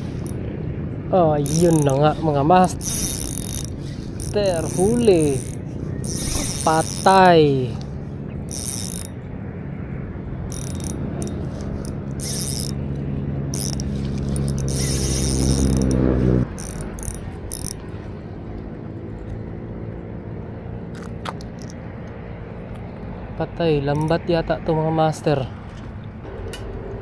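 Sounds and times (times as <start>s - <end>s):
reel drag clicking: 0.0s - 0.4s, 1.4s - 7.9s, 8.5s - 9.2s, 10.5s - 12.8s, 13.5s - 17.9s
spinning reel gears whirring: 1.4s - 7.4s, 8.5s - 9.2s, 10.5s - 12.8s, 13.5s - 17.8s.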